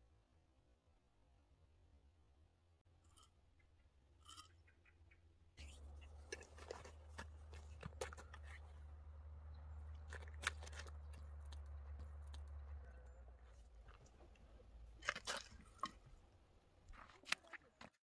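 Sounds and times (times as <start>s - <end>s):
low steady rumble: 5.6s - 16.9s.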